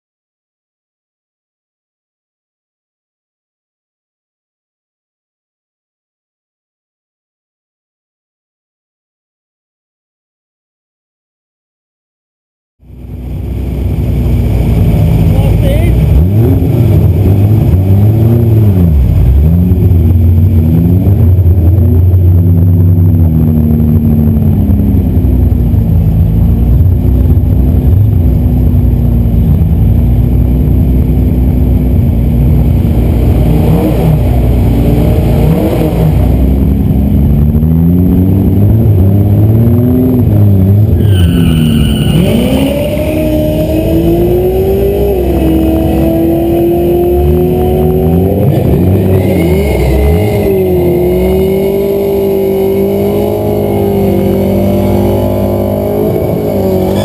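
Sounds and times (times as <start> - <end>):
turbo whine: 12.8 - 52.2
car engine idling and revving: 12.8 - 57.0.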